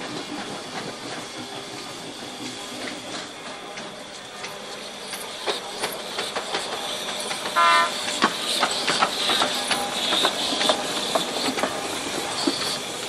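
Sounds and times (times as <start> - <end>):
locomotive wheels clanking: 0.0 - 13.0
steam hissing: 0.0 - 13.0
steam whistle toot: 7.6 - 8.1.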